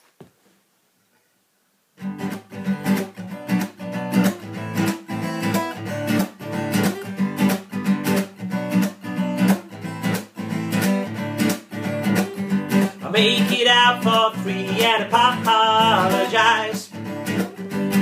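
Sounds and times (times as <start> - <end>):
acoustic guitar strumming: 2.0 - 18.0.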